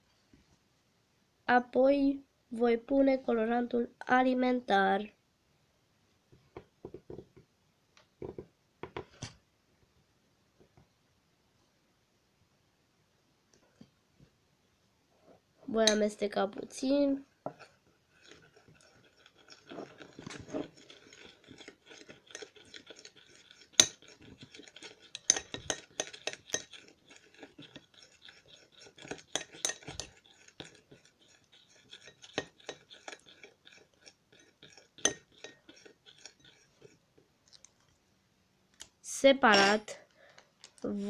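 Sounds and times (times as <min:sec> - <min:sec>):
soft scraping of stirring: 0:15.1 - 0:38.0, 0:39.4 - 0:40.8
spoon clinking against glass bowl: 0:19.1 - 0:36.6.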